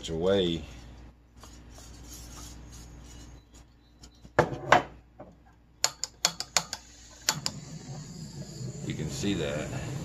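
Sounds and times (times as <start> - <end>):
gas burner hissing: 6.3 - 10.0.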